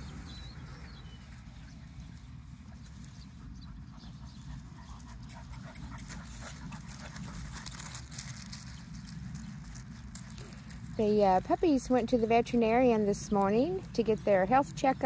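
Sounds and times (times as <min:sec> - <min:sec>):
distant dogs barking: 0:00.0 - 0:08.5
crunching on gravel: 0:06.4 - 0:14.7.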